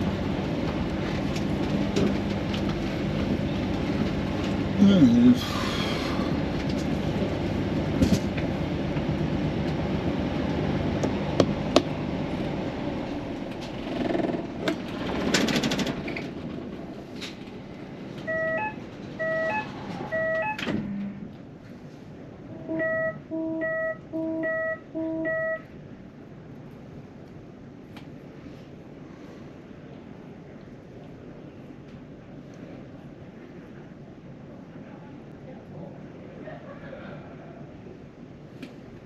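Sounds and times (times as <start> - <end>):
train diesel engine running: 0.0 - 39.0
intercom electronic beeping: 18.3 - 21.2, 22.6 - 25.6.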